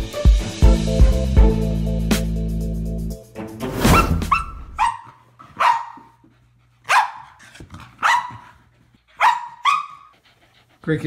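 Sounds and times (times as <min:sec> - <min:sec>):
dog barking: 0:04.0 - 0:06.1, 0:06.9 - 0:07.4, 0:08.0 - 0:08.6, 0:09.2 - 0:10.1.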